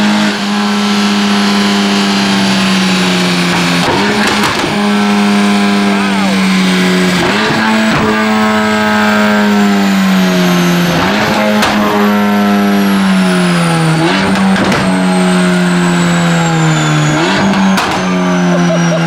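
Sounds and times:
car engine on a dyno: 0.0s - 19.0s
engine crack on downshift: 2.7s - 8.5s, 10.6s - 15.1s, 16.0s - 19.0s.

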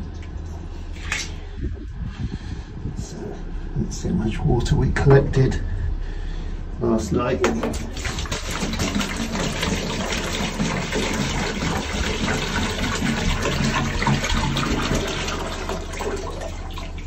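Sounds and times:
low hum: 0.0s - 17.0s
water running into plastic can: 7.5s - 17.0s.

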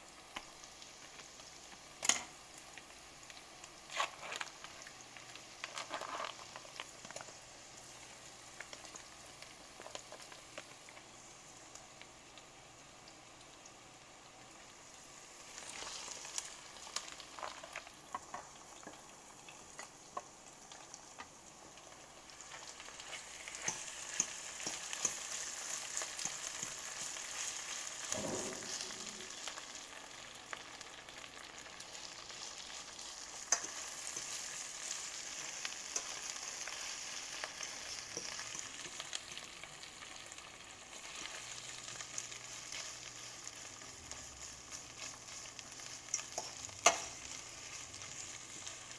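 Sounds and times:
mushrooms sizzling in a skillet: 0.0s - 48.9s
metal utensil scraping a pan: 23.0s - 29.5s.

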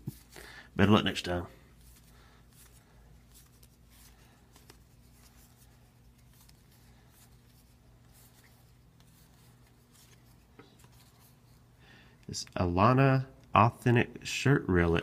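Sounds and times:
low steady hum: 0.0s - 15.0s
trading cards being flipped: 1.7s - 11.6s.

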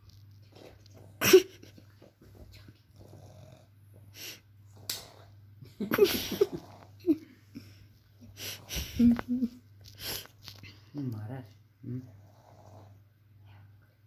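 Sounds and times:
puppy snorting breaths: 8.2s - 9.2s, 9.9s - 10.4s, 12.0s - 13.1s.

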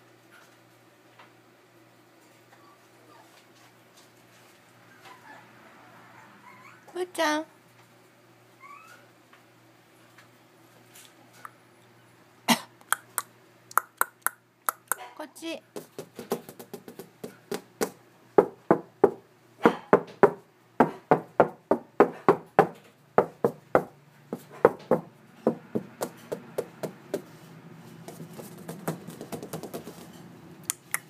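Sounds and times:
hand tapping on wood: 28.1s - 29.9s.

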